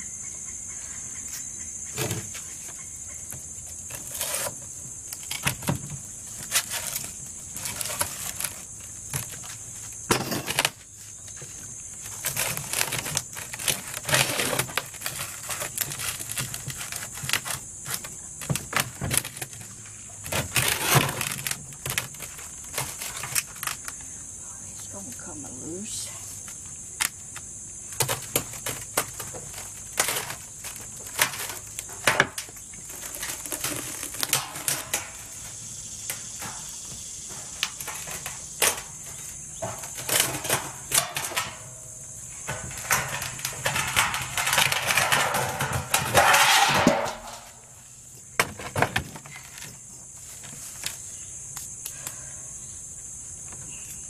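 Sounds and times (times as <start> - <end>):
high insect drone: 0.0 - 54.0
hand tool scraping concrete: 3.9 - 4.6, 12.1 - 18.1, 20.4 - 23.3, 42.5 - 47.7.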